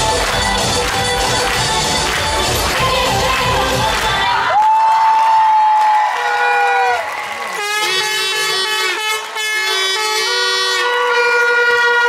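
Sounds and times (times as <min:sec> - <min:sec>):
handheld air horn blasts: 0:06.2 - 0:12.0.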